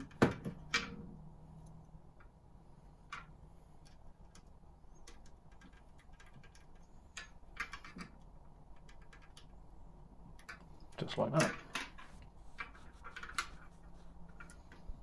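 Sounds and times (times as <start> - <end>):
small plastic parts clicking: 3.1 - 9.6.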